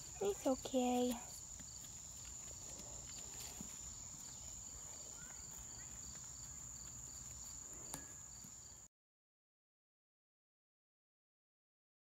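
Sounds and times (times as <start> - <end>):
crickets trilling: 0.0 - 8.8.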